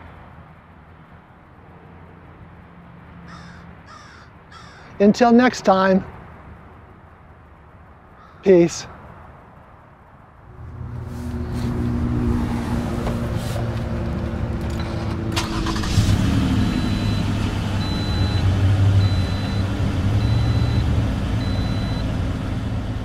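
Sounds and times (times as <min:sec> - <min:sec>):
vehicle engine running: 0:10.4 - 0:23.0.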